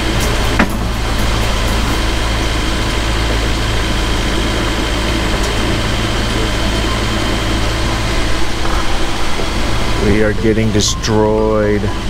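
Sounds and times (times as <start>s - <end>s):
boat engine droning: 0.0s - 12.0s
steady rushing noise: 0.0s - 12.0s.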